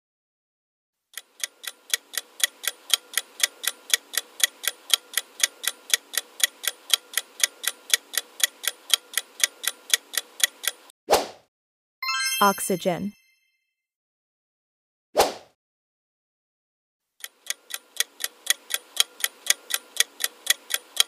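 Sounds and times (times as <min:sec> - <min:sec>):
countdown clock ticking: 0:01.2 - 0:10.9, 0:17.2 - 0:21.0.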